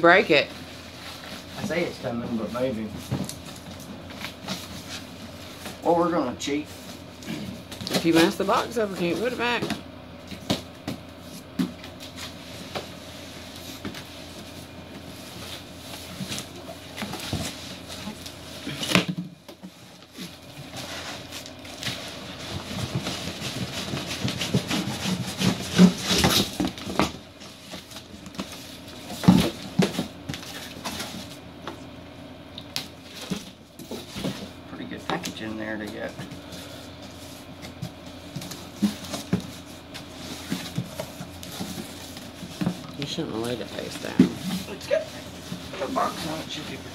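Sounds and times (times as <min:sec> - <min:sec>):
cardboard boxes scraping: 0:19.7 - 0:31.4, 0:36.0 - 0:43.0, 0:43.6 - 0:46.9.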